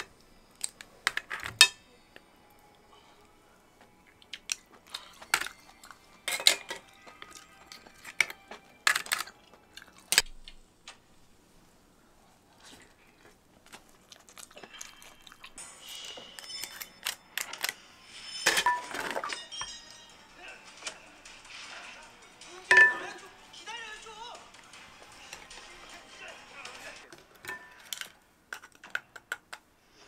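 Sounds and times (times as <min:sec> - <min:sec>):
chopsticks clinking on shells: 0:04.3 - 0:10.2.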